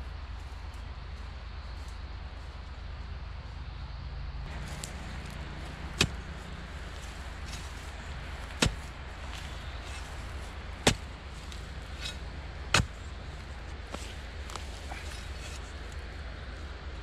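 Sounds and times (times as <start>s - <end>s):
hoe chopping into dry soil: 4.5s - 15.8s.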